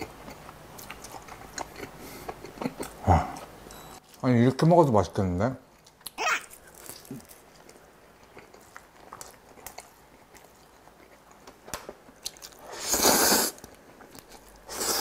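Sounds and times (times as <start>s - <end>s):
loud noodle slurp: 12.7s - 13.6s, 14.7s - 15.0s.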